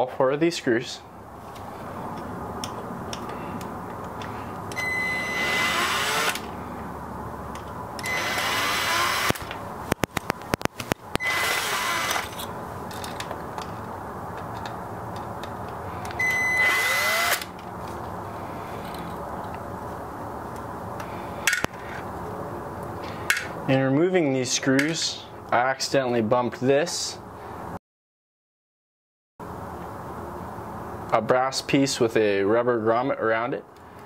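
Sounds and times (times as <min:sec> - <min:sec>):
cordless drill whining: 0:04.7 - 0:06.5, 0:08.0 - 0:09.6, 0:11.1 - 0:12.4, 0:16.1 - 0:17.5.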